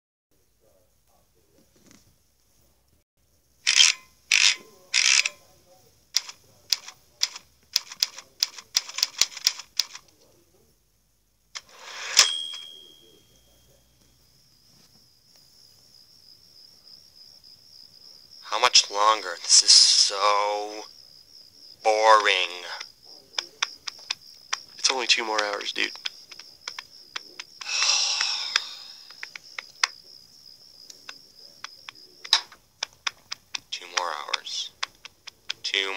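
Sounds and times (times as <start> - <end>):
typewriter keys clacking: 6.2 - 10.0
sharp ticks: 6.2 - 10.2, 22.1 - 30.0, 30.8 - 35.9
steady high thin whine: 11.6 - 14.9, 18.4 - 20.9
long breathy sigh: 27.6 - 29.1.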